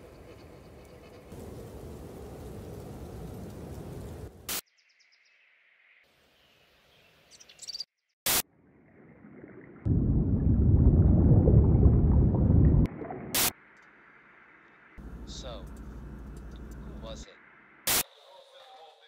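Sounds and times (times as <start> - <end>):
loud low rumbling rush: 9.9 - 12.9.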